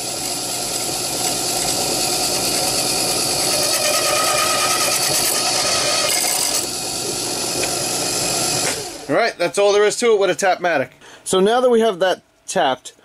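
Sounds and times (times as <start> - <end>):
drill press running: 0.0 - 9.2.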